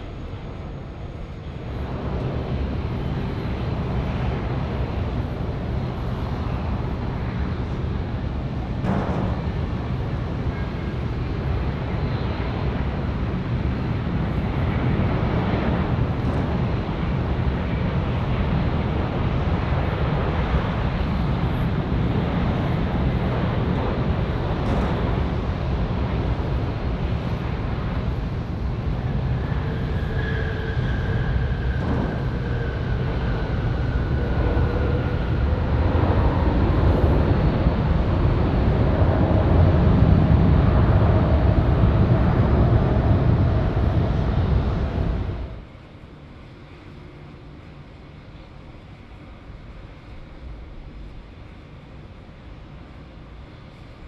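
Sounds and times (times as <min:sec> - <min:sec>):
faint high whine: 0:00.0 - 0:16.2
jet engine rumble: 0:00.0 - 0:54.0.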